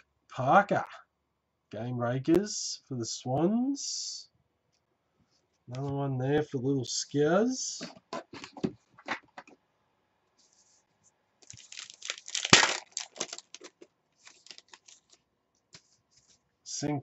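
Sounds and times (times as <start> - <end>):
card pack wrapper tearing: 11.4 - 15.2
wrapper crinkling: 11.4 - 15.3.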